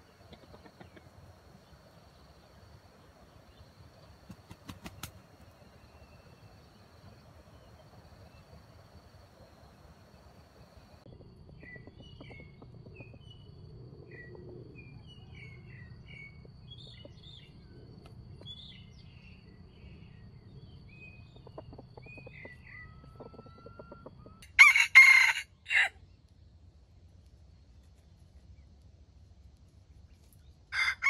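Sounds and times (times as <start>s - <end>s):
small birds chirping: 0.0s - 24.4s
rooster crowing: 23.0s - 26.0s, 30.7s - 31.0s.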